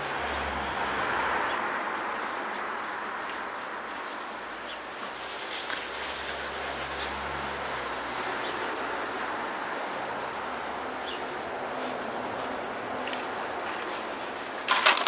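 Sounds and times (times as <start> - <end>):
puppies' paws scrabbling on gravel: 0.0 - 15.0.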